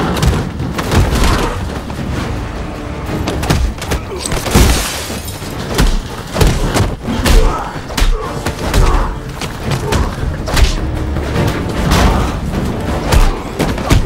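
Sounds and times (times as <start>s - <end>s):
dramatic music: 0.0s - 14.0s
heavy crash with glass shattering: 4.4s - 5.6s.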